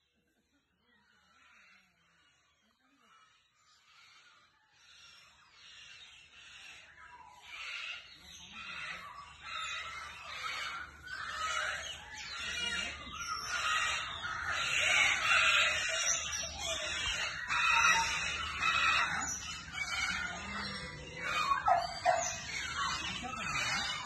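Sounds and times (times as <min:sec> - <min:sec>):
cockatoo squawking: 0:07.5 - 0:24.0.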